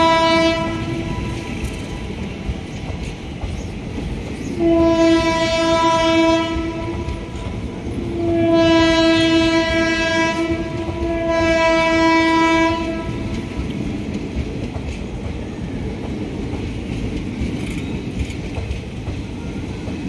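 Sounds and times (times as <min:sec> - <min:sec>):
train horn blasts: 0:00.0 - 0:01.8, 0:04.5 - 0:13.6
train coaches rumbling past: 0:00.0 - 0:20.0.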